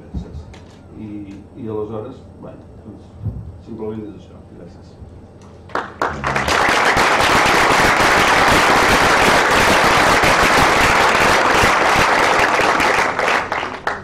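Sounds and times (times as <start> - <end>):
audience applauding: 5.7 - 14.0.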